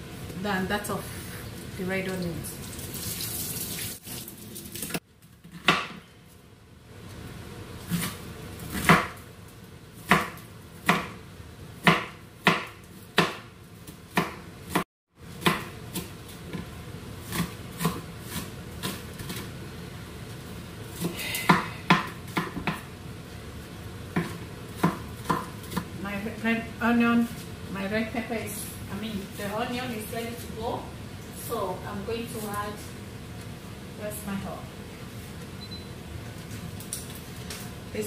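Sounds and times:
knife chopping on board: 5.5 - 6.0, 7.9 - 9.2, 10.0 - 11.2, 11.8 - 13.5, 14.1 - 14.8, 15.4 - 16.6, 17.2 - 19.4, 21.0 - 22.8, 24.1 - 25.9.

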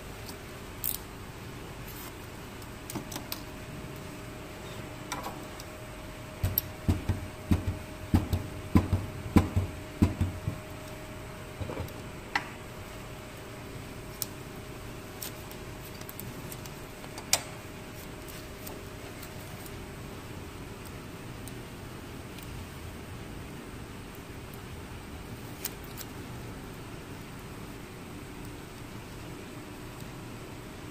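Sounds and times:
faint steady hum: 0.0 - 30.9.

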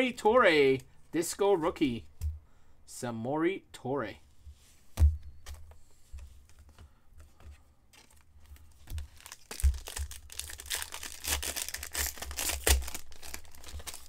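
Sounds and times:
wrapper tearing and crinkling: 8.0 - 14.0.

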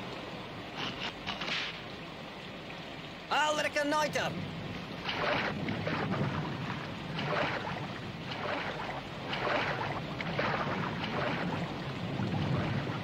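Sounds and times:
heavy rain: 0.0 - 13.0
river water: 0.0 - 13.0
horses splashing through water: 4.9 - 13.0.

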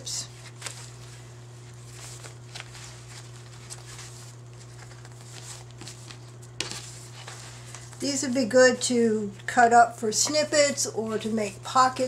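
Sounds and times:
fabric swatches rustling and flapping: 0.2 - 8.8.

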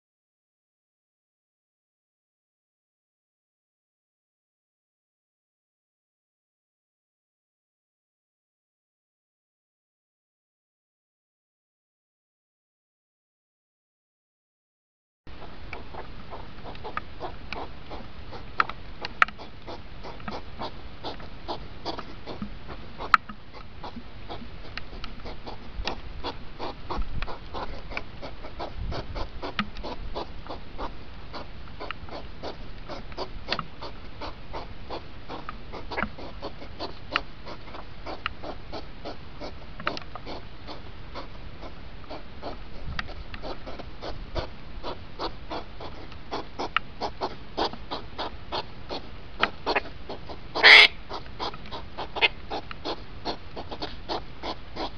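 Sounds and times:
hedgehogs snorting and huffing: 15.3 - 54.9.

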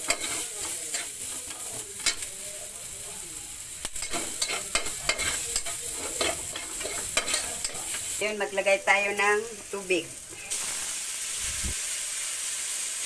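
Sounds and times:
metal spatula scraping a wok: 0.0 - 2.4, 4.0 - 8.2
food sizzling in oil: 0.0 - 13.0.

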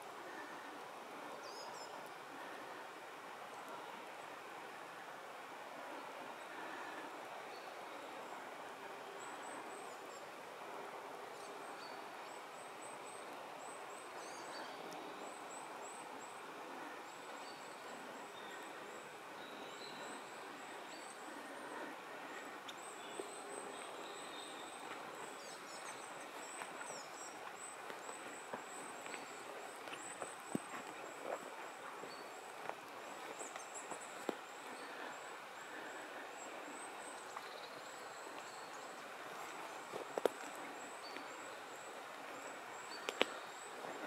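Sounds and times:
steady rushing background hiss: 0.0 - 44.0.

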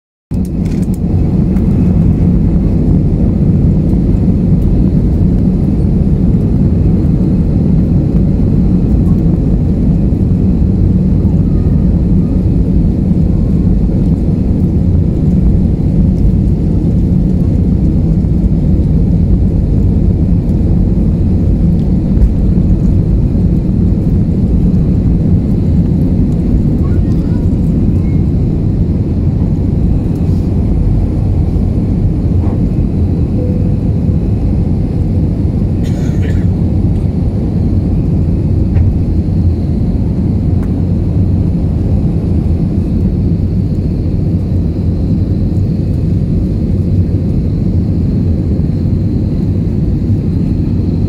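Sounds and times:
jet engines rumbling in cabin: 0.3 - 51.0.

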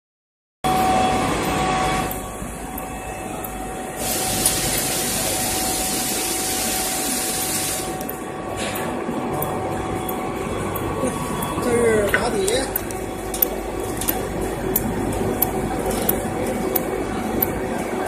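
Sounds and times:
welding machine whine: 0.7 - 8.7
loud hiss: 4.0 - 8.0.

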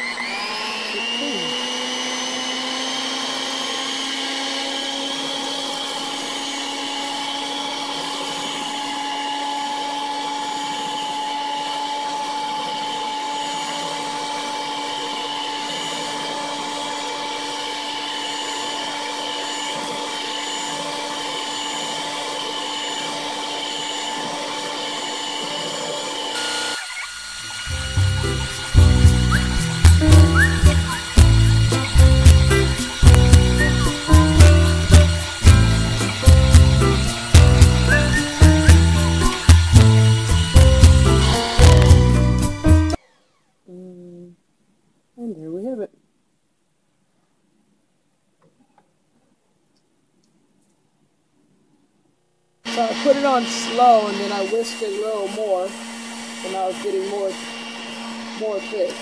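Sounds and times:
electric hand mixer whining: 0.0 - 43.4, 52.7 - 59.0.

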